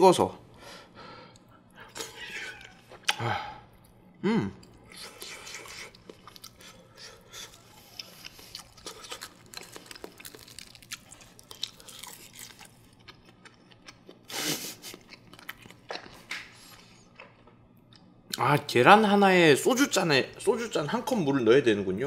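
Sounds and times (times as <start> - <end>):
person chewing food: 4.6 - 18.2.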